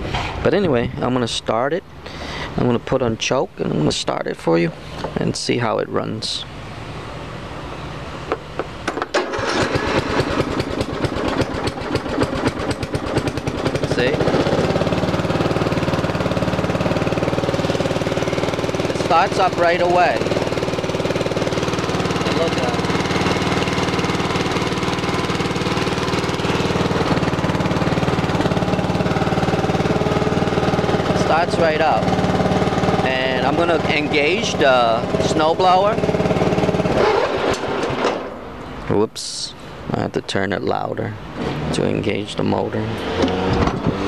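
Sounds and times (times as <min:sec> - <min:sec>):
lawn tractor engine cranking and starting: 0:08.9 - 0:38.4.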